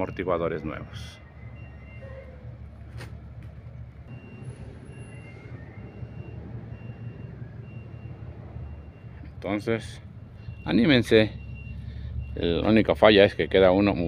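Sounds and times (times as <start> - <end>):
diesel truck engine idling: 0.0 - 14.0
faint high beep: 10.4 - 14.0.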